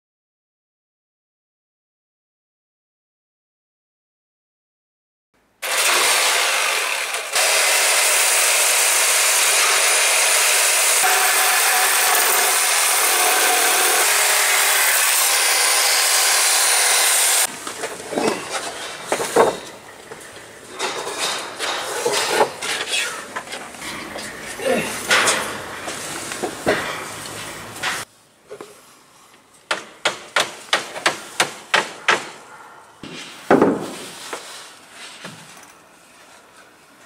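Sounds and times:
power saw cutting wood: 5.6 - 17.5
timber and tools clattering: 17.5 - 25.6.

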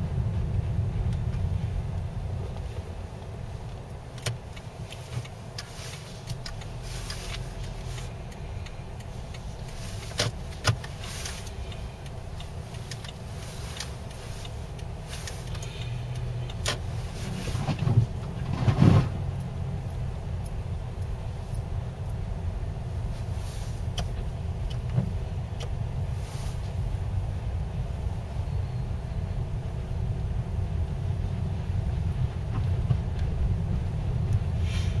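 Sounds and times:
engine and road rumble: 0.0 - 35.0
sharp clicks and knocks: 2.5 - 22.2.

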